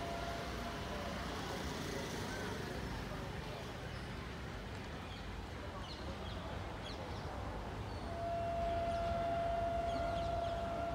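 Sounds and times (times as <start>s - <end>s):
train rumbling: 0.0s - 1.5s, 8.0s - 10.9s
train horn blast: 8.0s - 10.9s.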